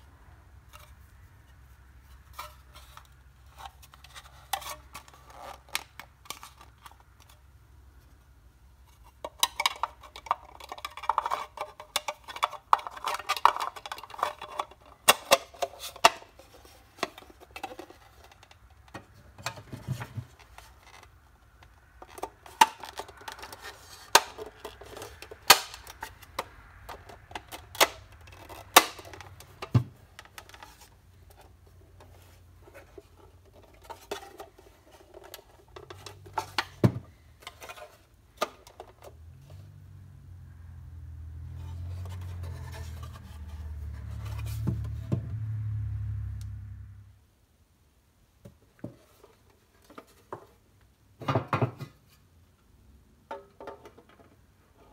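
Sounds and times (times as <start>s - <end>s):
plastic scraping against steel: 0.6s - 7.5s, 8.8s - 39.8s, 41.4s - 45.3s.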